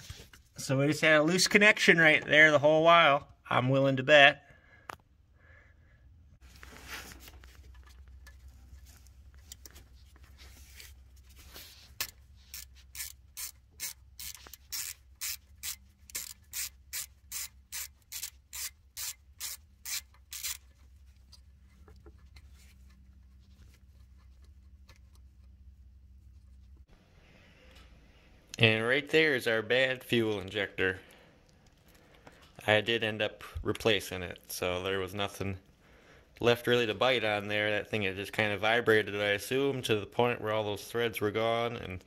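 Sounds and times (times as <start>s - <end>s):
scraping handling noise: 6.4s - 26.9s
ratchet wrench clicking: 12.0s - 20.7s.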